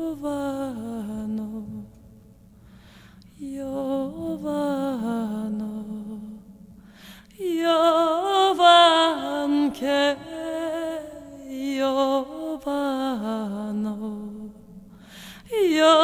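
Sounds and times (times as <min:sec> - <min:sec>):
chant-like singing voice: 0:03.4 - 0:06.7, 0:07.3 - 0:16.0.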